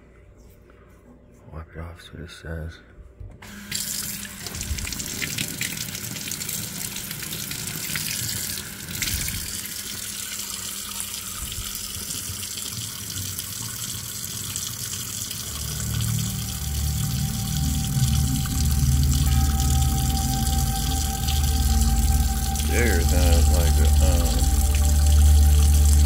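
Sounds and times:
tap water running into sink: 3.7 - 26.0
music: 15.5 - 26.0.

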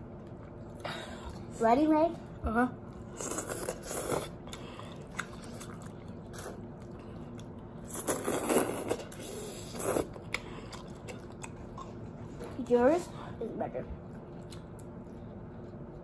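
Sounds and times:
slurping noodles: 3.2 - 6.6, 7.8 - 10.9.

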